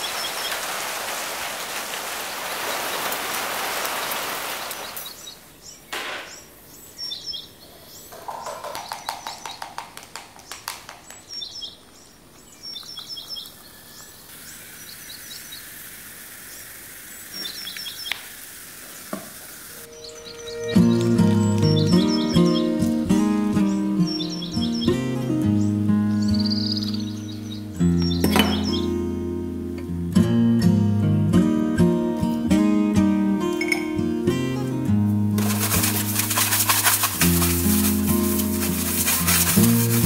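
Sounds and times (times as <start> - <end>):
small birds chirping: 0.0 - 29.1, 35.4 - 40.0
steady rain hiss: 0.0 - 30.1, 35.0 - 40.0
acoustic guitar music: 19.9 - 40.0
glass and bottle clinking: 33.5 - 34.0.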